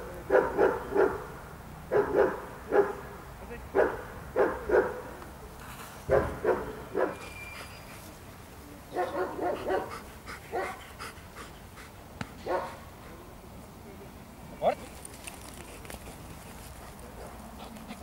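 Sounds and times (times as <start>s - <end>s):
dog barking: 0.3s - 1.3s, 1.9s - 3.0s, 3.8s - 5.0s, 6.1s - 7.2s, 8.9s - 10.8s, 12.4s - 12.8s.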